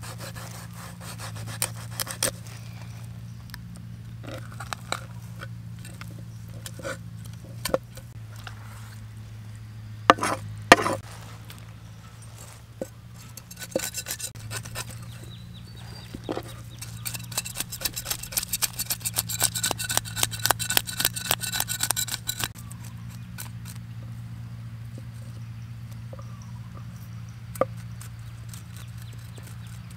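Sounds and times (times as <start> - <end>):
cleaver scraping fish scales: 0.0 - 3.1, 4.2 - 9.1, 10.1 - 23.9, 27.5 - 29.9
blade knocking on chopping block: 10.1 - 11.0.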